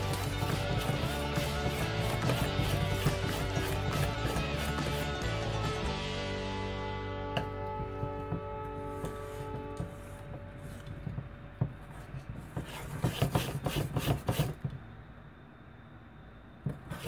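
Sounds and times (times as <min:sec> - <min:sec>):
utensil stirring batter in metal bowl: 0:00.0 - 0:05.6.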